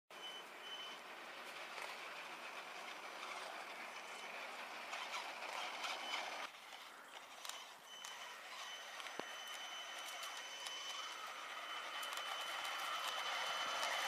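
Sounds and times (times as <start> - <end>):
toy truck motors whirring: 0.2 - 14.0.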